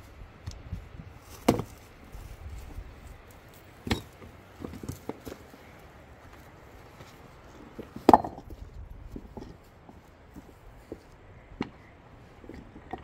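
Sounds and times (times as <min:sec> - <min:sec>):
stones knocking together: 0:01.3 - 0:01.8, 0:03.8 - 0:05.5, 0:07.8 - 0:09.6, 0:12.4 - 0:13.0.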